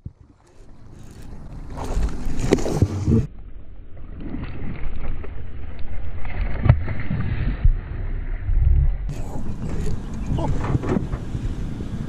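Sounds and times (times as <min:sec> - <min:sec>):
fish slapping water: 0:00.2 - 0:03.1
wind on microphone: 0:08.4 - 0:12.0.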